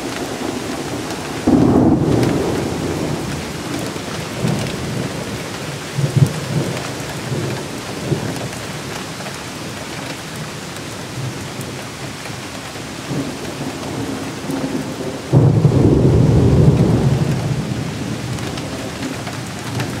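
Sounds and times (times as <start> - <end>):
thunder peal rumbling: 0.0 - 8.4, 13.1 - 20.0
steady rain falling: 0.0 - 20.0.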